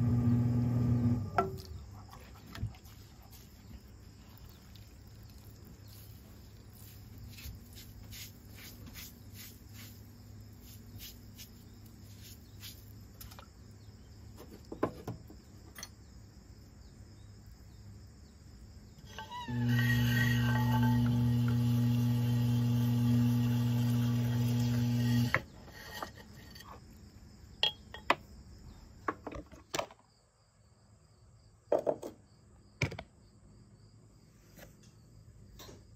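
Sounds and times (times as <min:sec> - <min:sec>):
potter's wheel humming: 0:00.0 - 0:01.6, 0:19.1 - 0:26.4.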